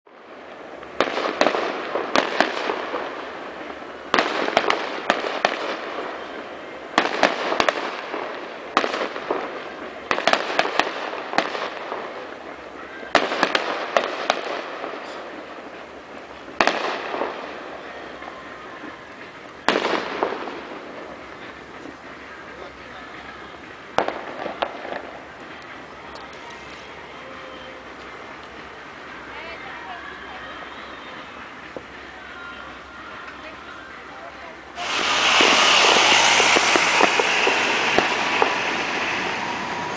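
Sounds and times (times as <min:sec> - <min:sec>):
fireworks rumble and crackle: 0:00.0 - 0:39.9
distant fireworks bangs: 0:00.2 - 0:22.2, 0:23.6 - 0:25.7, 0:34.8 - 0:39.9.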